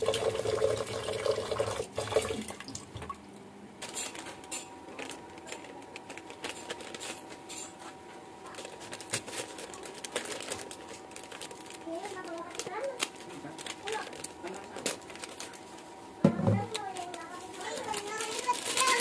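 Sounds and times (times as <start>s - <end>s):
tap water running into pot: 0.0s - 3.1s.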